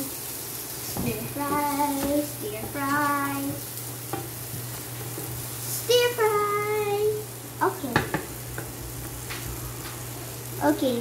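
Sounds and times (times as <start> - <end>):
vegetables sizzling in oil: 0.0 - 11.0
spatula stirring in pan: 0.7 - 6.1
child singing held notes: 1.0 - 3.6.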